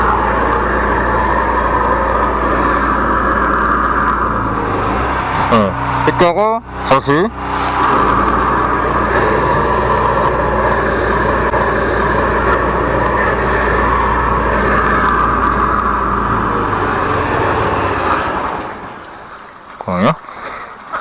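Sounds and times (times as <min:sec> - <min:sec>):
sewer jetter engine running: 0:00.0 - 0:21.0
pump and jet hissing: 0:07.5 - 0:08.8.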